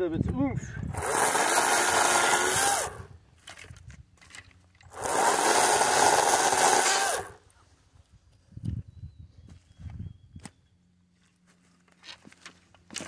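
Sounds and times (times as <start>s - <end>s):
electric chainsaw motor running: 0.9s - 3.2s, 4.8s - 7.4s.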